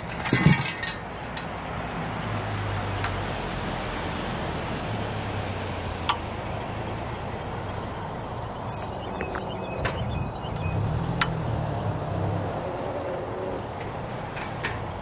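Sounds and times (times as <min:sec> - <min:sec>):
caps clicking onto bolts: 0:00.0 - 0:01.6, 0:13.8 - 0:15.0
road traffic noise: 0:00.0 - 0:15.0
vehicle low drone: 0:00.0 - 0:15.0.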